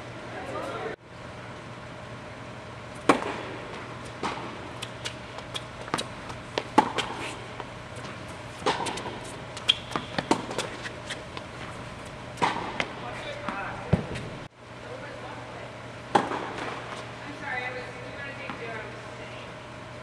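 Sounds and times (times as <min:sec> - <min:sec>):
racket hitting tennis ball: 0:03.0 - 0:11.8, 0:12.4 - 0:14.3, 0:16.1 - 0:17.1
tennis ball bouncing: 0:03.0 - 0:11.8, 0:12.4 - 0:14.3, 0:16.1 - 0:17.1.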